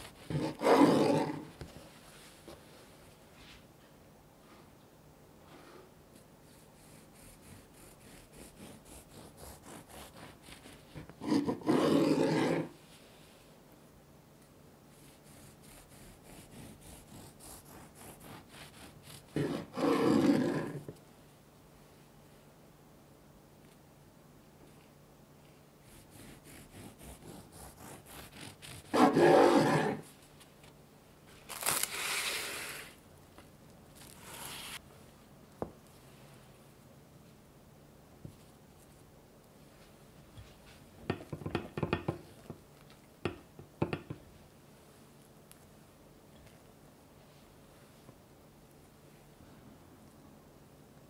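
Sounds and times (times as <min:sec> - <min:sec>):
bread knife sawing: 0:06.8 - 0:12.7, 0:15.2 - 0:20.8, 0:25.9 - 0:30.0.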